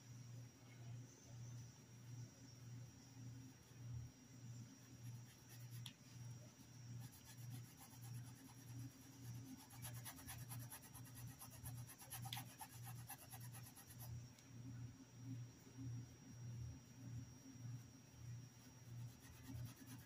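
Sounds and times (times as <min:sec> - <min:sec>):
low pulsing hum: 0:00.0 - 0:20.0
paintbrush scrubbing fabric: 0:07.0 - 0:14.1, 0:18.9 - 0:20.0.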